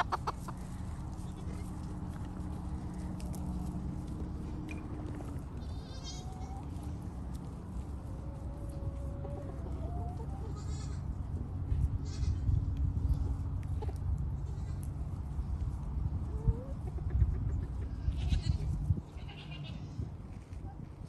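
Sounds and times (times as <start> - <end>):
steady low rumble: 0.0 - 21.0
goats bleating: 5.6 - 6.6, 10.5 - 11.1, 18.0 - 19.8.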